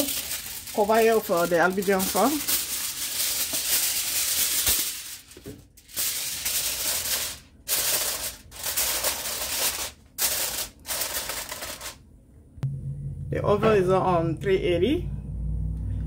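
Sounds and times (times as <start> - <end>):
aluminium foil crinkling: 0.0 - 12.0.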